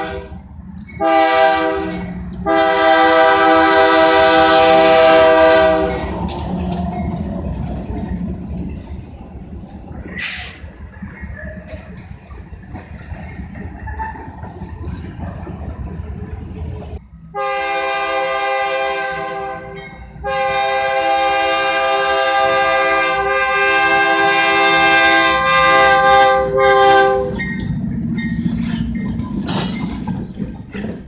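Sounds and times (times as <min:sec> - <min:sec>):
locomotive air horn blasts: 0:00.0 - 0:00.4, 0:01.0 - 0:06.2, 0:17.3 - 0:27.4
freight train rumbling: 0:00.0 - 0:31.0
locomotive engine rumble: 0:00.0 - 0:31.0.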